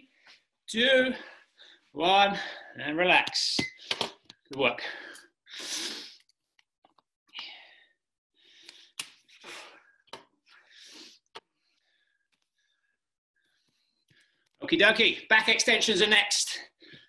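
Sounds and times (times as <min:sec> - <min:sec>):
man breathing hard: 0:04.8 - 0:06.2, 0:07.4 - 0:14.4.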